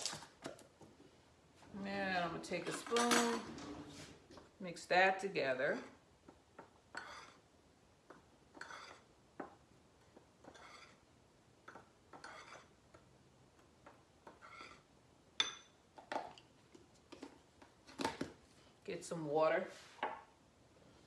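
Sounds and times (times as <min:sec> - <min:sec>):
spoon stirring flour in a bowl: 0:06.6 - 0:07.4, 0:08.1 - 0:11.0, 0:11.7 - 0:14.9.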